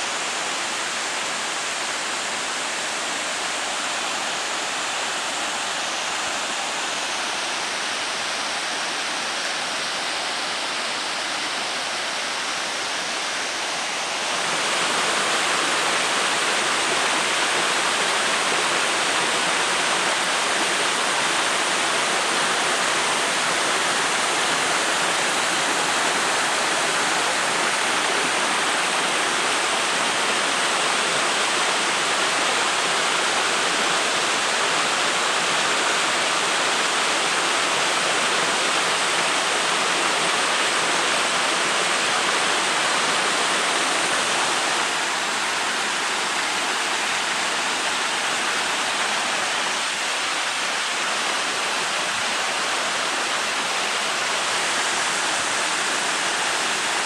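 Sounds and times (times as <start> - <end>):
waterfall rushing: 0.0 - 57.0.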